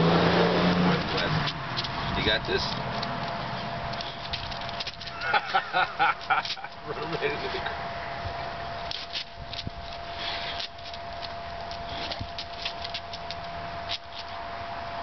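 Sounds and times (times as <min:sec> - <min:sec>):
dog sniffing and breathing: 0:03.4 - 0:05.1, 0:08.9 - 0:12.8.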